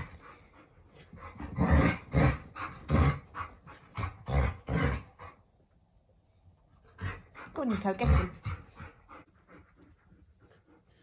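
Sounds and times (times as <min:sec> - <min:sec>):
dogs growling while play-fighting: 0:00.0 - 0:05.4, 0:06.8 - 0:09.2.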